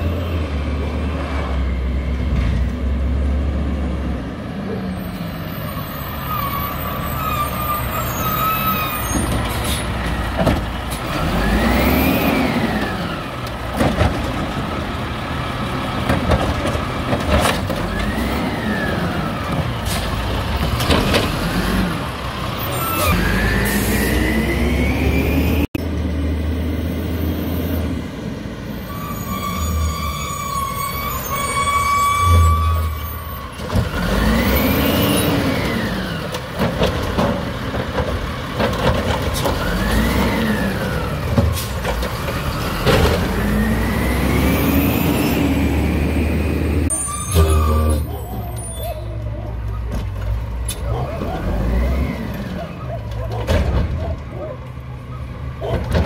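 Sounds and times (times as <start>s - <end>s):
garbage truck engine revving: 6.8s - 28.5s, 33.5s - 56.0s
metal arm and carts clanking: 46.8s - 56.0s.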